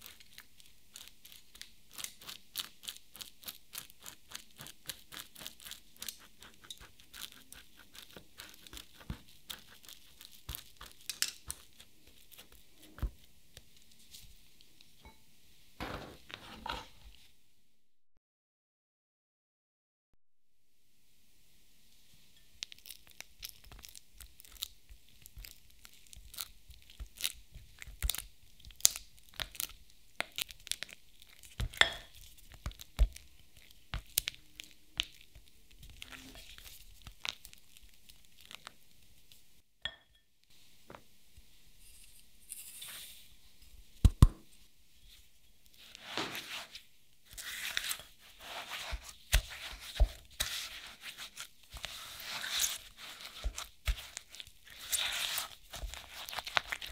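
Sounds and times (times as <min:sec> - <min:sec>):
spatula scraping sweeps: 0:15.8 - 0:17.2, 0:41.8 - 0:43.4, 0:45.8 - 0:56.7
spatula tapping glass bowl: 0:31.8 - 0:32.1.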